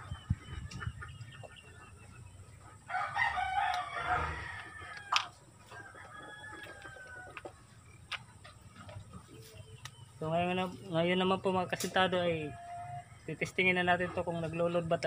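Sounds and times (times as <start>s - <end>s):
rooster crowing: 2.9s - 7.5s.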